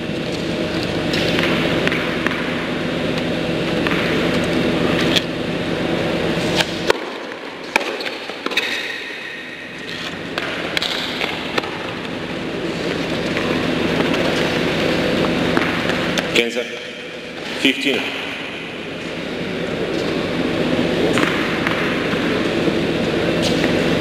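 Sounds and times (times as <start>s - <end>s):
steady hum: 0.0s - 24.0s
tennis ball struck by rackets: 3.8s - 4.3s, 15.5s - 16.2s, 21.0s - 22.4s.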